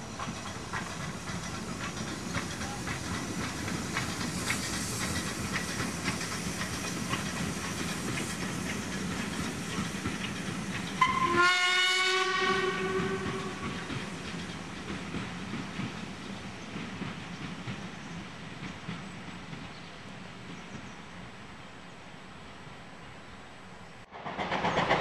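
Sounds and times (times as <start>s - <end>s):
wheels clicking over rail joints: 0.0s - 11.7s, 12.4s - 17.8s
steam locomotive hissing: 0.0s - 20.6s
steam whistle blast: 11.0s - 13.4s.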